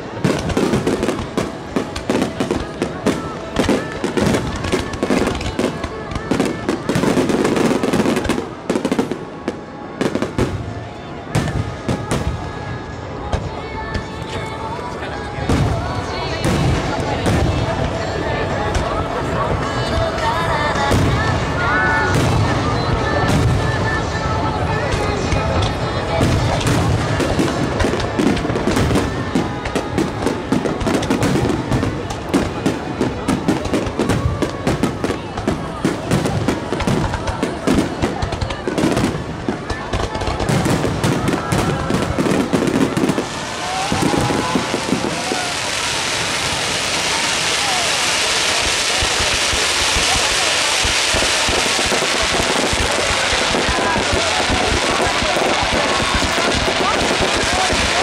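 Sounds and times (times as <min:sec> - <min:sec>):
fireworks crackling and banging: 0:00.0 - 0:58.0.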